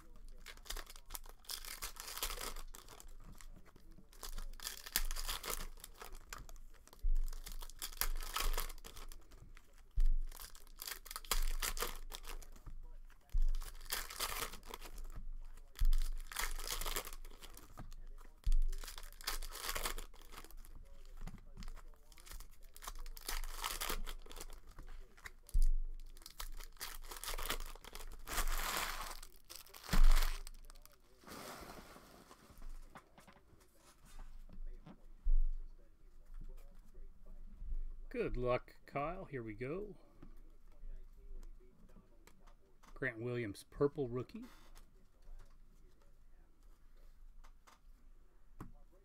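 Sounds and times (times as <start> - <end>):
foil wrapper crinkling and tearing: 0.0 - 12.6, 13.2 - 31.1.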